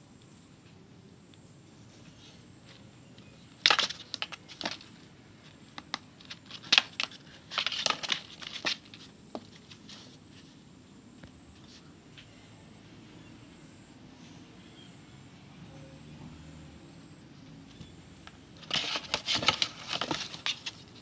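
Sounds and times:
kitten claws scratching cardboard: 18.6 - 21.0.

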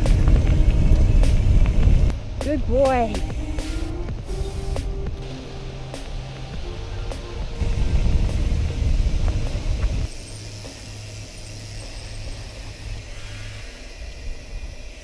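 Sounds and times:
bike tyre rumble on gravel: 0.0 - 3.4, 4.1 - 10.2
wind buffeting microphone: 0.0 - 10.1.

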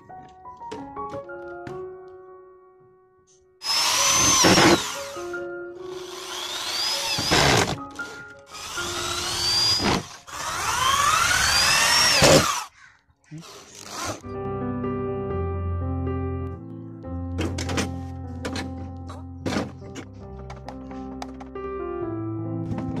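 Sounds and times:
background music: 0.0 - 12.2, 14.1 - 23.0
power drill whining into plastic: 3.6 - 12.7, 13.4 - 14.2.

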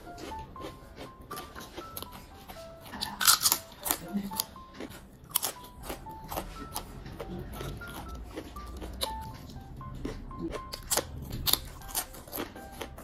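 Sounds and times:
chip crunching and chewing: 0.0 - 13.0
soft background music: 0.0 - 13.0.

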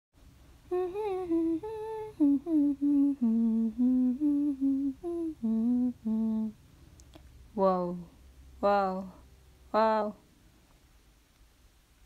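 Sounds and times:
person humming a tune: 0.7 - 6.6.

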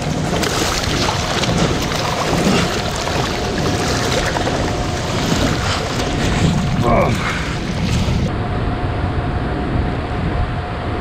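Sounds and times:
fish splashing in water: 0.0 - 8.3
wind on microphone: 0.0 - 11.0.

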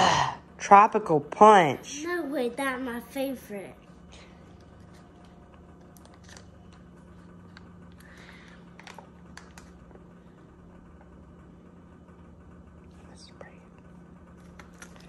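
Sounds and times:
low steady hum: 0.0 - 15.0
foil pouch crinkling: 4.8 - 6.7.

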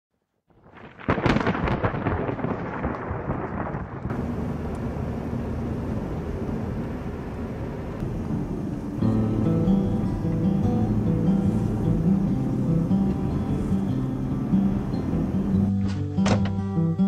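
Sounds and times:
thunderclap rumbling: 0.5 - 15.7
car cabin road hum: 4.1 - 16.0.

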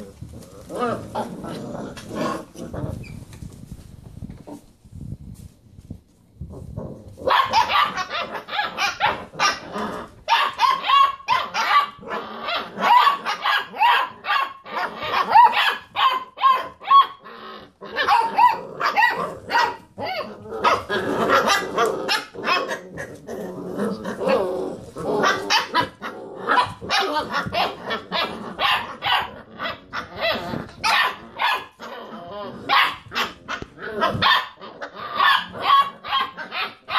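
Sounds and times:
puppies barking and rooing: 7.2 - 36.9.

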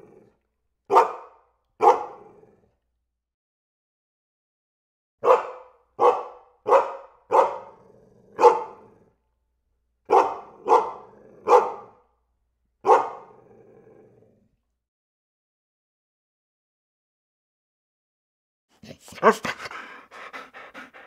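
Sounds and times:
dog barking: 0.9 - 2.4, 5.2 - 9.0, 10.1 - 12.0, 12.8 - 13.5, 18.8 - 19.9.

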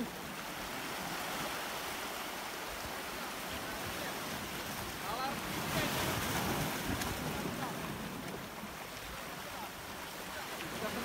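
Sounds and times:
surf breaking against boulders: 3.5 - 9.5.

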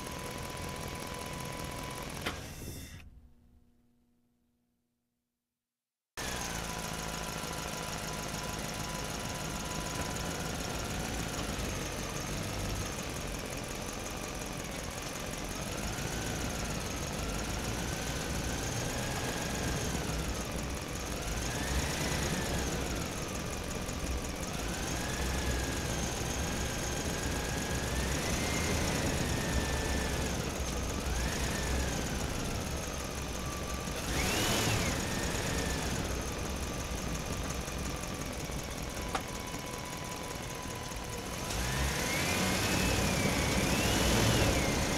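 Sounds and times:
small electric motors whining: 24.2 - 37.0.

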